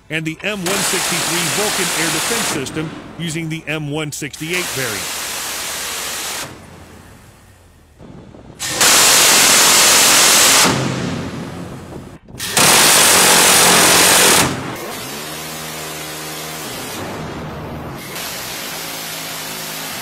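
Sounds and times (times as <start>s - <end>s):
rotary cannon firing bursts: 0.5s - 3.2s, 4.4s - 15.5s.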